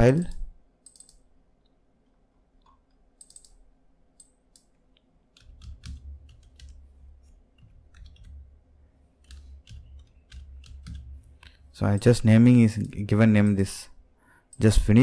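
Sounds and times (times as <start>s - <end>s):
keyboard typing: 0.3s - 1.2s, 2.7s - 3.6s, 5.3s - 8.5s, 9.2s - 13.7s.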